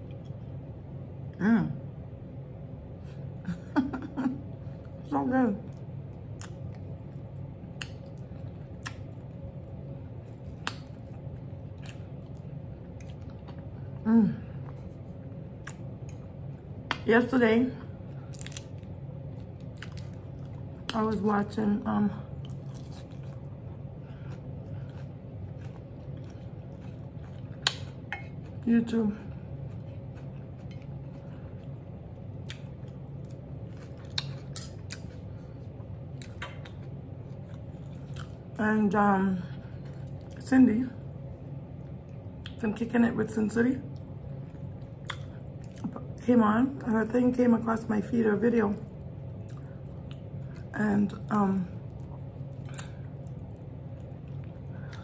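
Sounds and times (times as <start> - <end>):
steady low hum: 0.0 - 55.0
person chewing food: 5.7 - 17.0, 18.2 - 21.0, 22.3 - 38.5, 39.5 - 40.4, 43.9 - 46.2, 49.3 - 50.7, 51.7 - 55.0.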